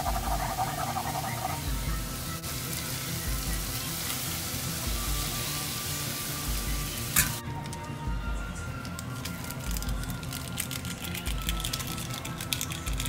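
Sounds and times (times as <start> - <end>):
food sizzling in frying pan: 0.0 - 7.4
background music with low beat: 0.0 - 13.0.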